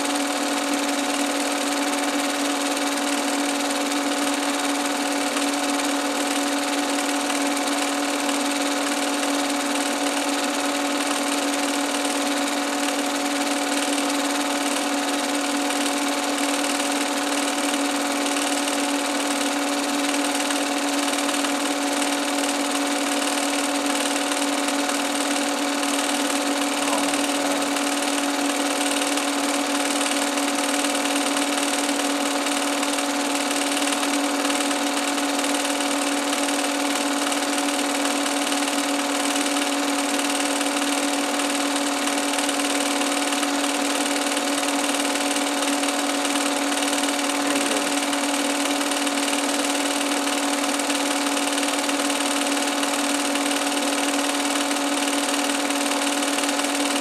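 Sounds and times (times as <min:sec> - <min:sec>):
film projector motor whirring: 0:00.0 - 0:57.0.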